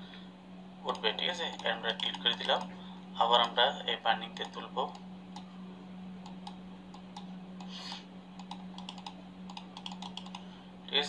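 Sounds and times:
steady low hum: 0.0 - 11.0
computer mouse clicks: 0.9 - 2.7, 4.4 - 5.5, 6.2 - 10.4.

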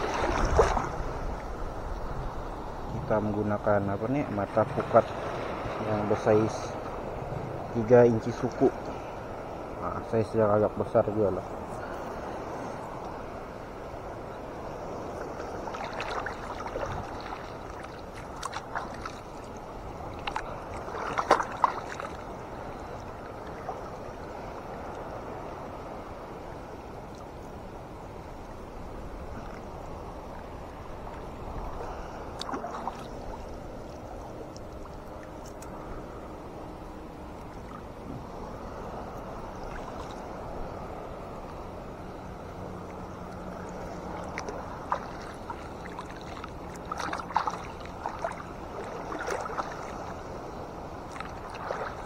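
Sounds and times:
water splashes and drips: 0.0 - 1.5, 15.2 - 24.0, 32.4 - 35.7, 42.8 - 50.2, 51.0 - 52.0
water lapping and sloshing: 0.0 - 52.0.

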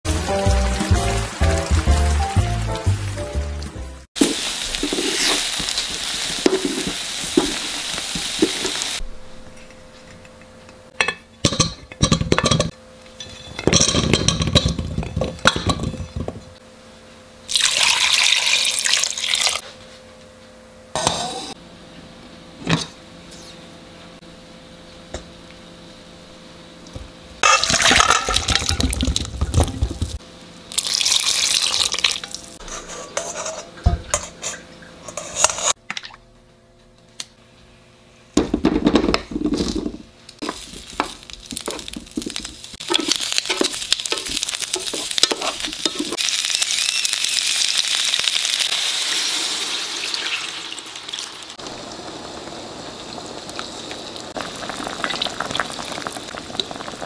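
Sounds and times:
glaze sizzling in a pan: 4.1 - 9.0, 40.4 - 57.0
pots clinking: 9.6 - 16.5, 27.4 - 30.2, 31.7 - 35.8, 38.8 - 46.3
water pouring: 17.5 - 19.6, 30.8 - 32.4, 49.1 - 57.0.

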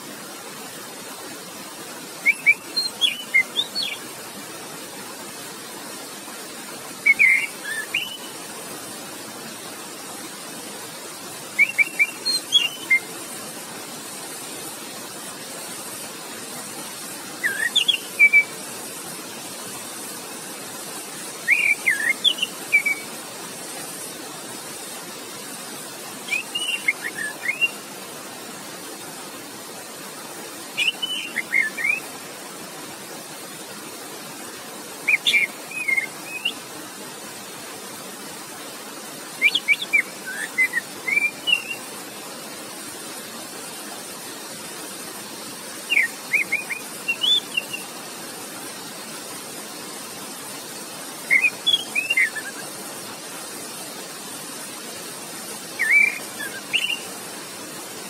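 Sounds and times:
flowing water rushing: 0.0 - 58.0
thrush singing whistled notes: 2.1 - 4.1, 6.9 - 8.6, 11.4 - 13.4, 17.0 - 19.0, 21.3 - 23.2, 26.2 - 28.0, 30.7 - 32.2, 35.0 - 36.7, 39.3 - 42.0, 45.7 - 48.0, 50.7 - 52.8, 55.6 - 57.2.

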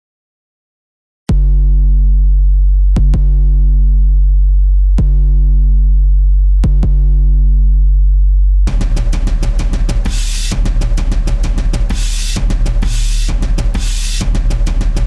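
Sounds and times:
deep synthesizer bass note: 1.3 - 15.0
drum machine hits: 8.7 - 15.0.

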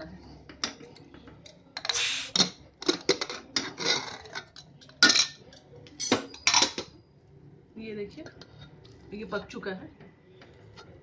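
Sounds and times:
pressure cooker hisses: 1.8 - 2.5.

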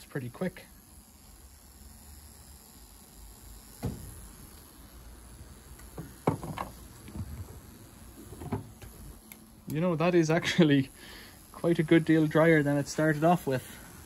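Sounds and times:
knocks and clunks: 6.0 - 7.5.

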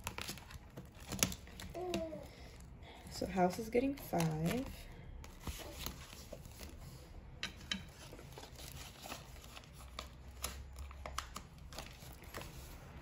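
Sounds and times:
soft clicks of plastic envelope: 0.0 - 2.7, 3.7 - 6.8, 7.9 - 13.0
banknotes rustling: 3.2 - 7.1, 7.9 - 13.0.

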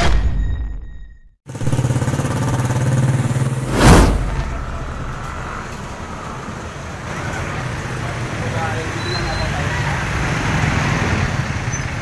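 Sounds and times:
vehicle engine running: 1.5 - 8.7
traffic whooshing past: 2.3 - 12.0.

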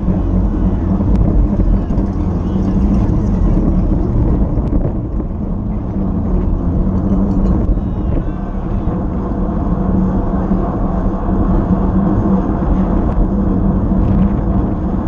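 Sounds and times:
tyre and road noise: 0.0 - 15.0
wind buffeting microphone: 0.0 - 15.0.

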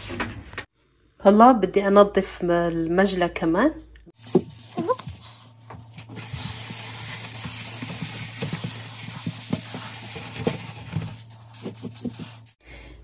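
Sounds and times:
sponge scrubbing a metal sink: 4.2 - 12.6.

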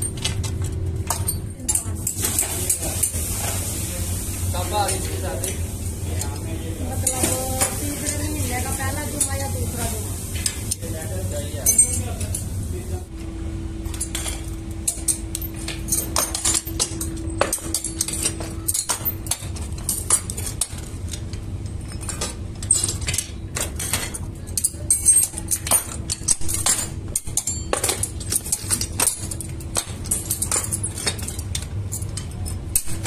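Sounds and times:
metal clinks and clanks: 0.0 - 3.2, 11.6 - 12.5, 13.8 - 33.0
steady low hum: 0.0 - 33.0.

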